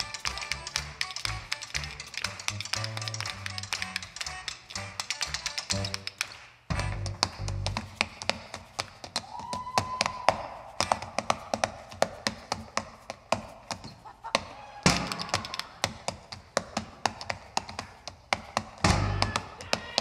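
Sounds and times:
sneakers stomping on a stage floor: 0:06.7 - 0:20.0.

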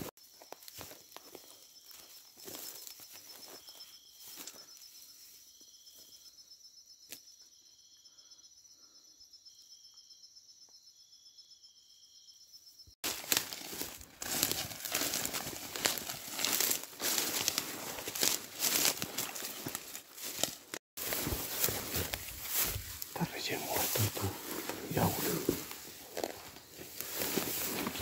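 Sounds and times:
footsteps in dry grass: 0:00.1 - 0:06.1, 0:13.0 - 0:28.0
night insects trilling: 0:00.2 - 0:20.4, 0:21.0 - 0:28.0
dry vegetation crackling: 0:13.0 - 0:28.0.

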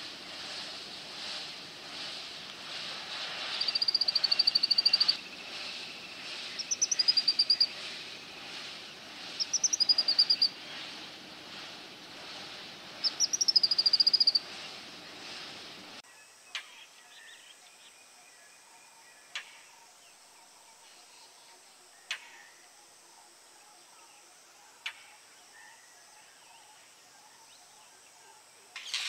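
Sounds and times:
steady background hiss: 0:00.0 - 0:29.0
bird singing with trills: 0:03.6 - 0:08.4, 0:09.3 - 0:10.6, 0:13.0 - 0:14.5.

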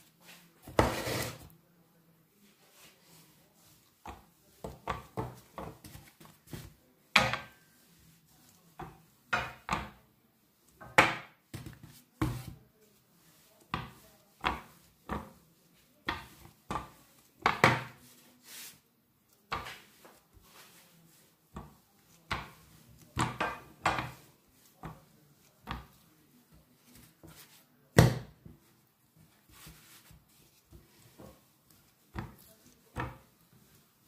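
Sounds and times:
rolling pin knocking on countertop: 0:08.8 - 0:10.0, 0:10.8 - 0:12.6, 0:16.0 - 0:18.0, 0:23.2 - 0:24.2.

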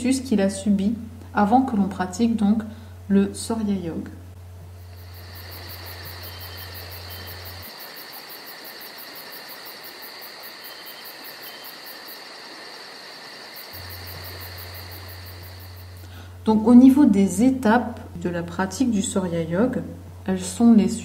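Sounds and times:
constant high buzz: 0:00.0 - 0:21.0
low hum: 0:00.6 - 0:07.7, 0:13.7 - 0:20.3
insects chirping: 0:04.6 - 0:16.4.

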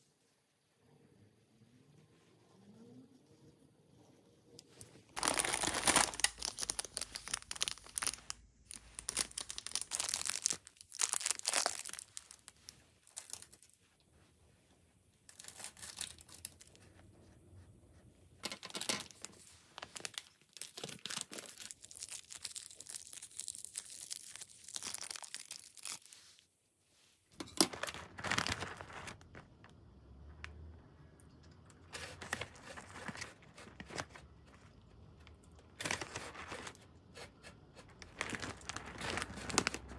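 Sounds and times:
plastic packets crinkling: 0:05.2 - 0:13.8, 0:15.3 - 0:16.8, 0:18.4 - 0:26.2, 0:27.5 - 0:29.6, 0:31.9 - 0:36.9, 0:37.8 - 0:39.9.

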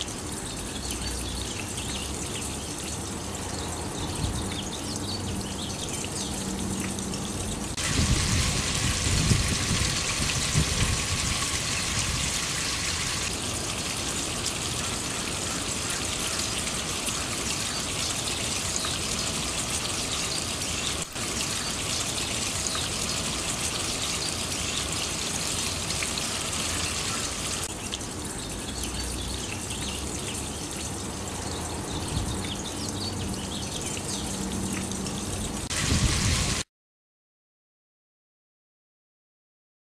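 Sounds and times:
water splashing down rain chain: 0:00.0 - 0:36.6.

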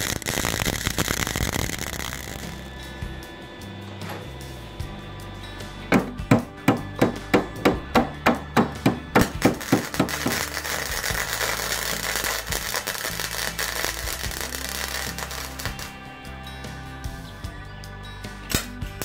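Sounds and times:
welder crackling and hissing: 0:00.0 - 0:05.2, 0:09.2 - 0:16.3
background music: 0:00.0 - 0:19.0.

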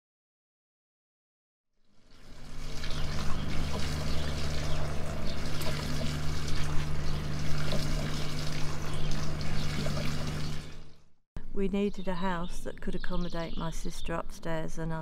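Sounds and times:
water trickling over stones: 0:01.9 - 0:10.9
steady low hum: 0:02.2 - 0:13.4.

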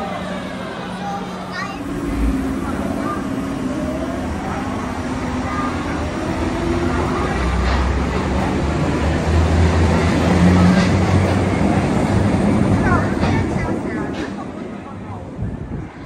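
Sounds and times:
train wheels rumbling on rail: 0:00.0 - 0:16.0
low hum: 0:01.6 - 0:06.5.

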